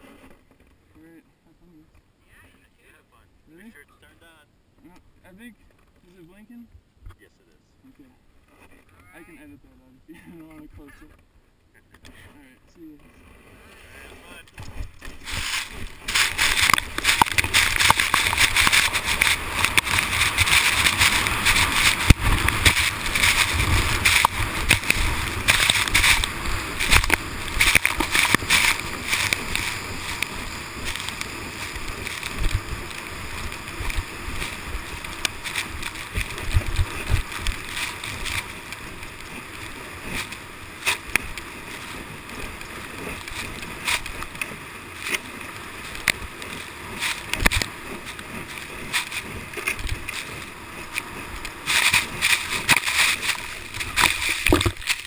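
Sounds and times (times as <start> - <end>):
plastic sled sliding over snow: 0.0 - 0.8, 13.0 - 55.0
sled bumps and knocks: 14.6 - 55.0.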